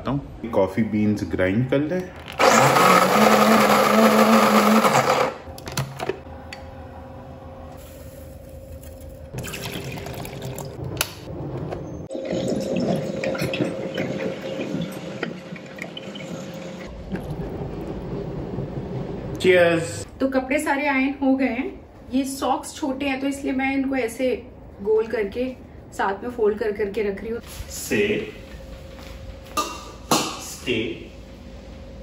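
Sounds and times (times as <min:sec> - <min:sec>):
coffee grinder running: 0:02.3 - 0:05.5
coffee maker gurgling: 0:09.4 - 0:10.8, 0:12.1 - 0:18.0
coffee pouring into mug: 0:09.4 - 0:10.8.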